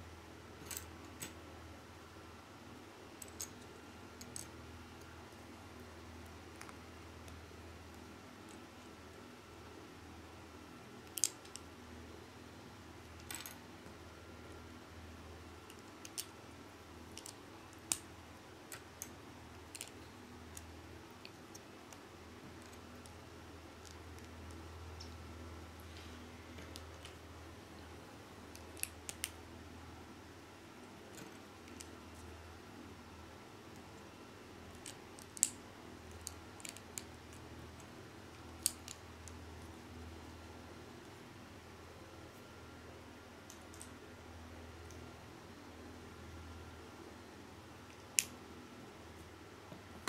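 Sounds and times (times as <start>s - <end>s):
faint low hum: 0.0s - 50.0s.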